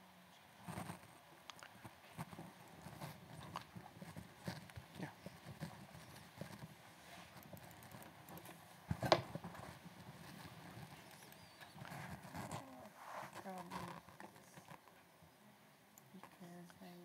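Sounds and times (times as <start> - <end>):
laptop keyboard typing: 7.4 - 8.6.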